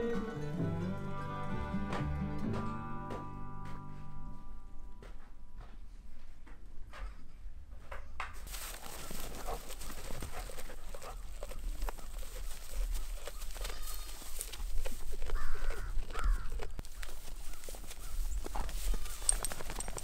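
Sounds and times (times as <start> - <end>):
animal calls: 8.8 - 20.0.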